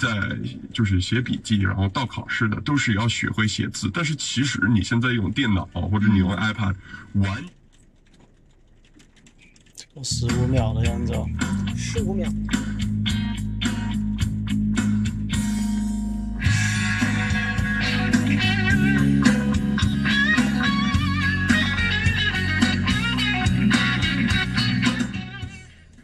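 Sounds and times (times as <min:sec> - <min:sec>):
guitar music from car speakers: 0:10.1 - 0:26.0.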